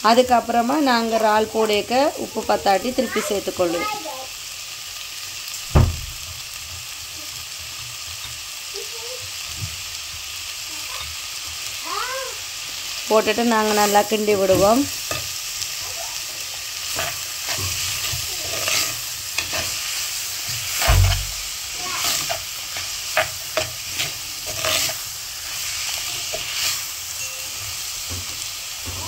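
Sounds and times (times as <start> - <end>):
onions sizzling in oil: 0.0 - 29.0
dull knock: 5.7 - 6.2
metal spatula scraping pot: 16.8 - 26.9.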